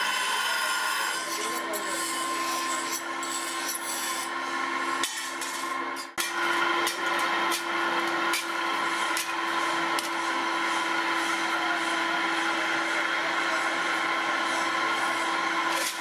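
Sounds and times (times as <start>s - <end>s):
grinder wheel rasping on steel: 0.0s - 12.5s
machine motor hum: 0.0s - 16.0s.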